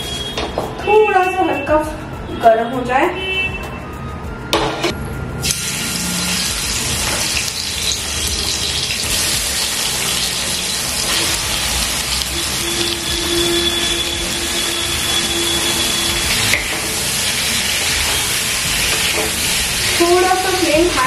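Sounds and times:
prawns sizzling in pan: 5.4s - 21.0s.

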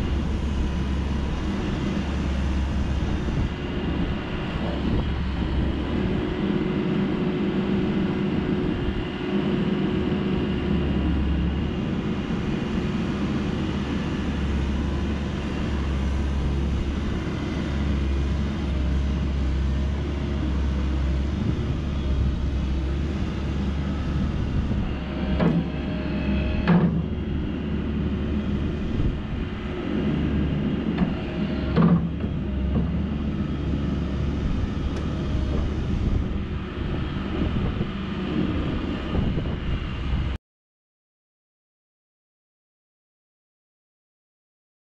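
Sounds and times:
excavator diesel engine running: 0.0s - 40.4s
sharp knocks: 25.4s - 25.8s, 26.6s - 27.2s, 31.0s - 33.0s.

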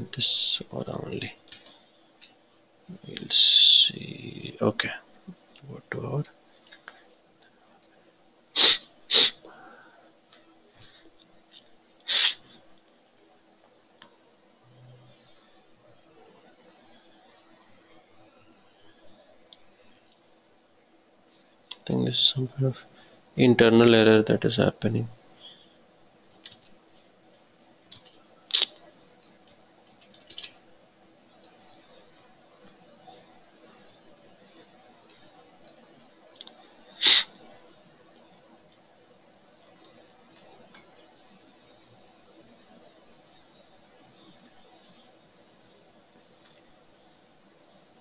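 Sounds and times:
faint steady hum: 0.0s - 48.0s
person's hissy breaths: 8.6s - 10.2s, 12.1s - 12.6s, 36.9s - 37.4s
computer mouse clicks: 27.9s - 30.6s.

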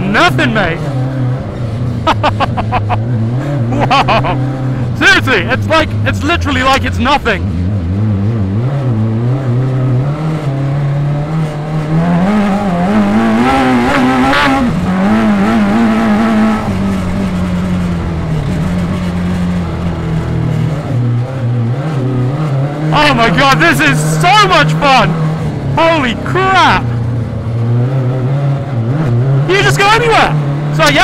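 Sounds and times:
buggy engine revving: 0.0s - 31.0s.

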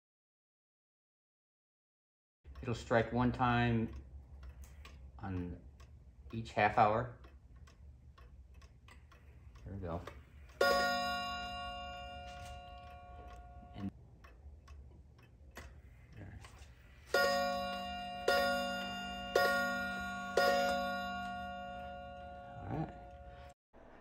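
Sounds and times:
wall clock striking: 2.5s - 23.5s
faint clock ticking: 2.5s - 23.6s.

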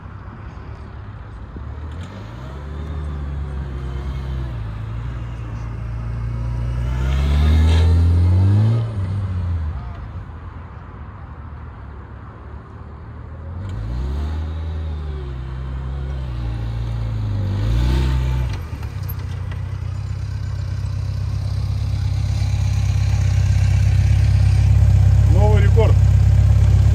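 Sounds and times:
motorcycle engine revving: 1.9s - 9.6s, 13.6s - 26.9s.

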